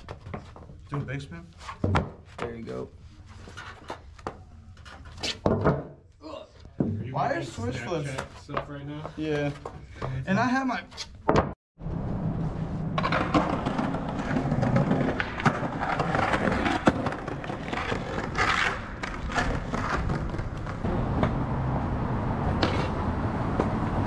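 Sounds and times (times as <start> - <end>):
skateboard scrape: 11.8 - 20.8, 22.5 - 23.0
skateboard wheels rumbling on concrete: 11.8 - 21.5, 22.4 - 24.0
skateboard clacks and knocks: 12.9 - 21.3.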